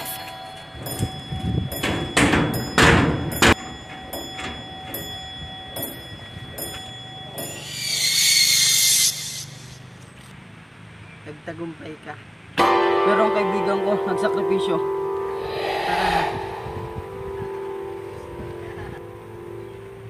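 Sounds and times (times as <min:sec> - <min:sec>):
faint steady held tones: 0:00.0 - 0:07.8
loud hissing whoosh: 0:15.3 - 0:18.0.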